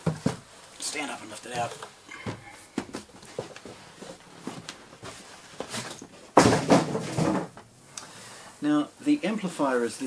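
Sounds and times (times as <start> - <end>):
cardboard and paper rustling: 1.5 - 7.5.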